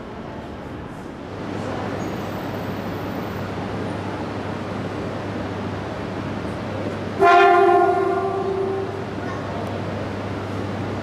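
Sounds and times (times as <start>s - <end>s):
train machinery humming: 0.0s - 11.0s
train horn blast: 7.2s - 9.1s.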